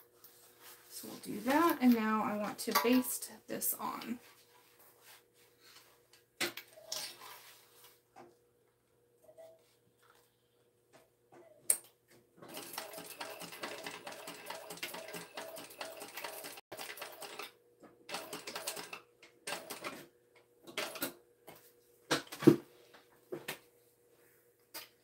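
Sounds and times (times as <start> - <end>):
sewing machine clattering: 12.5 - 17.5, 18.1 - 20.0.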